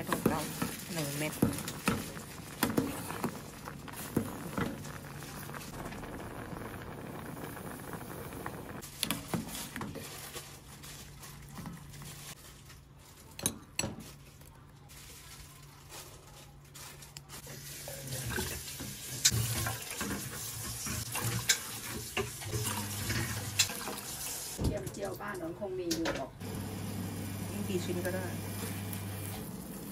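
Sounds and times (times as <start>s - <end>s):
rice bubbling in a pot: 0.0s - 25.7s, 26.4s - 29.9s
liquid pouring into a pot: 0.3s - 9.3s, 17.4s - 24.6s.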